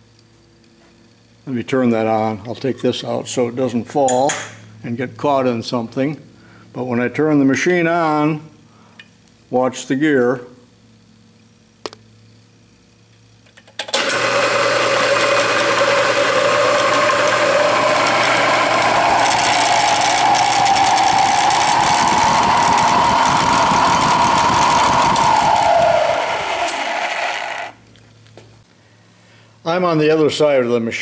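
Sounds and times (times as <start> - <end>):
drill press whirring: 13.6 - 27.9
rising mechanical whine: 13.9 - 28.1.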